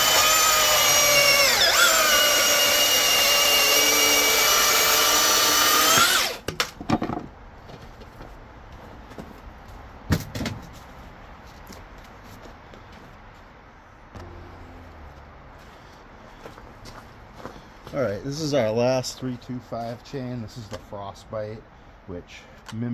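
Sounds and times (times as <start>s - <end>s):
chainsaw cutting wood: 0.0s - 6.5s
thump: 14.1s - 14.9s.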